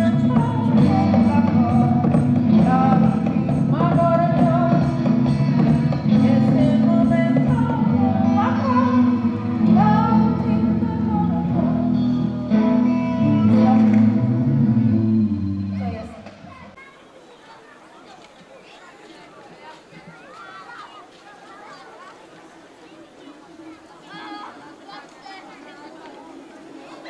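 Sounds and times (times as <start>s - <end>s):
person singing over a beat: 0.0s - 14.7s.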